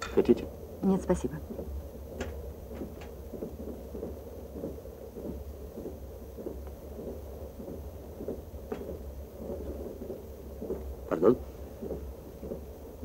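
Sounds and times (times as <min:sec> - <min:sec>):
train rumbling: 0:00.0 - 0:13.0.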